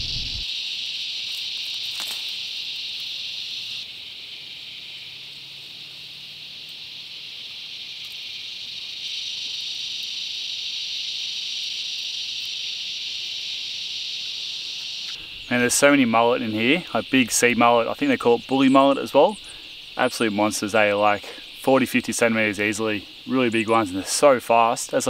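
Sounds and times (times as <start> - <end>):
insects buzzing: 0.0 - 25.0.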